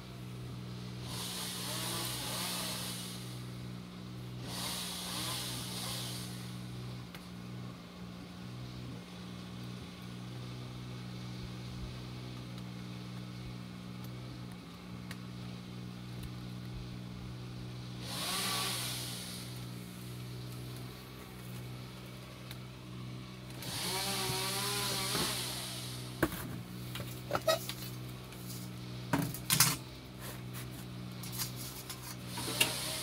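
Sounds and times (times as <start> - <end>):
chainsaw revving and cutting: 0.0 - 14.6, 15.2 - 33.0
engine running steadily: 0.0 - 33.0.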